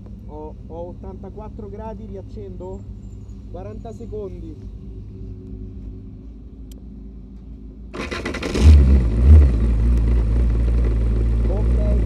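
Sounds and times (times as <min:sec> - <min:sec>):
starter motor cranking: 0:08.0 - 0:09.4
race car engine revving and idling: 0:08.0 - 0:12.0.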